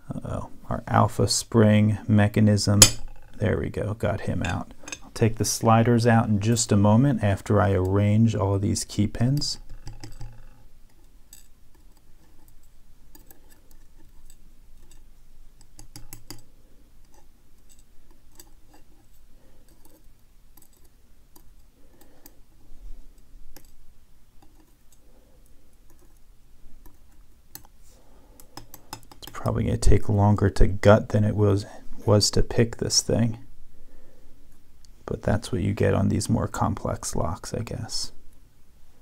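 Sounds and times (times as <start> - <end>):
tweezers clicking on metal tray: 28.4 - 29.4.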